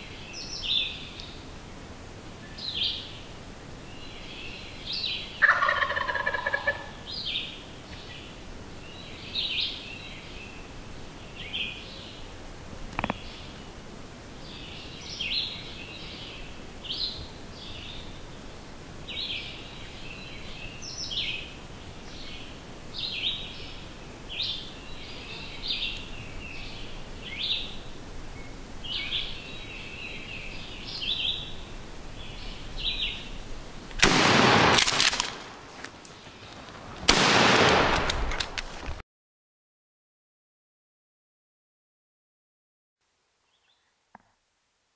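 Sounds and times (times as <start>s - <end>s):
songbird chirping: 0.0s - 34.0s, 43.4s - 44.0s.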